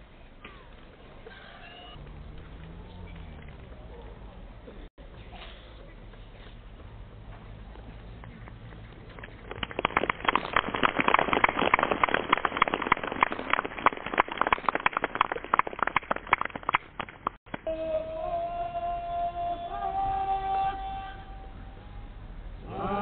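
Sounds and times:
rapid clatter of clicks: 0:09.1 - 0:17.4
flute-like tune: 0:17.6 - 0:21.7.

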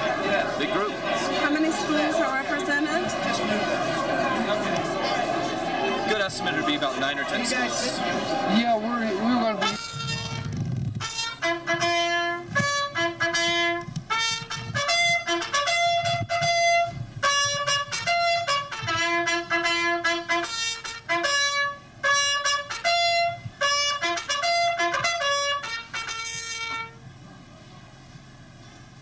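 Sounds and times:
trumpet playing a tune: 0:09.2 - 0:27.0.

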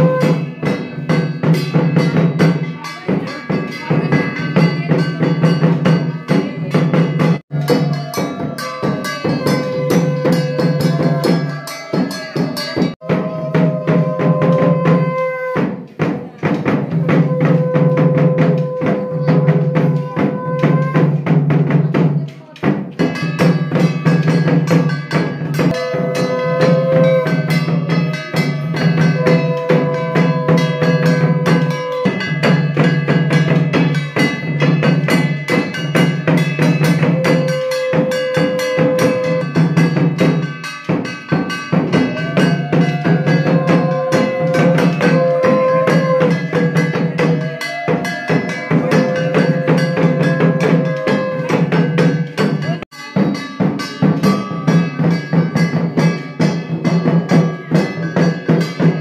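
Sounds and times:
fast dense drumming: 0:16.0 - 0:59.0.

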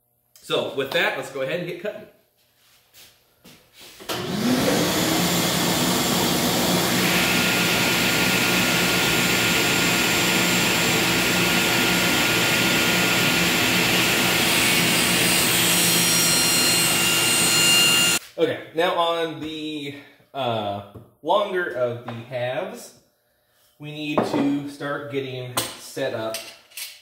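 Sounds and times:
saw blade cutting wood: 0:04.1 - 0:18.2
table saw motor whining: 0:04.1 - 0:18.2.

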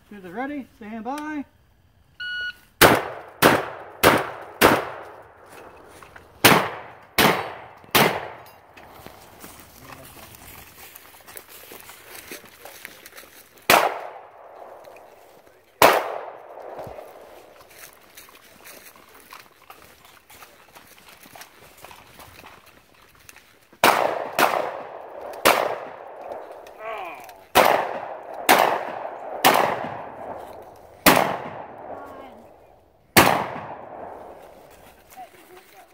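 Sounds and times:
shot timer beep: 0:02.2 - 0:02.6
shotgun shots: 0:02.8 - 0:08.7, 0:13.6 - 0:15.1, 0:15.8 - 0:17.5, 0:23.8 - 0:26.8, 0:27.4 - 0:32.4, 0:33.1 - 0:34.6
footsteps through dry leaves: 0:08.8 - 0:13.7, 0:16.4 - 0:23.8, 0:34.0 - 0:35.9.

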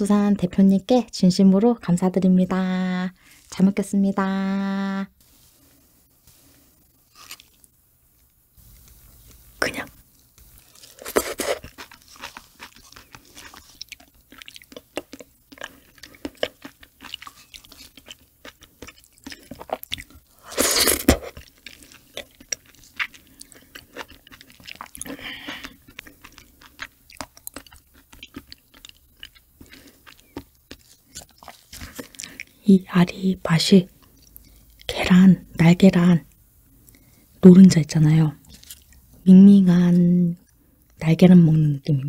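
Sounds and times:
wet chewing: 0:10.4 - 0:32.6
slurping: 0:10.9 - 0:11.8.

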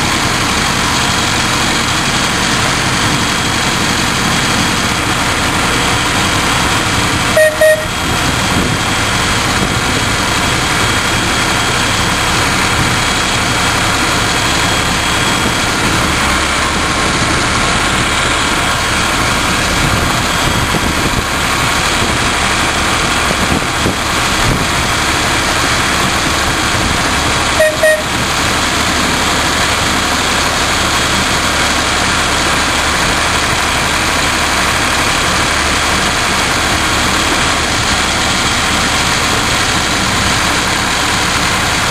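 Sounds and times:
locomotive diesel engine running: 0:00.0 - 0:41.9
locomotive horn toots: 0:07.2 - 0:08.3, 0:27.4 - 0:28.5.

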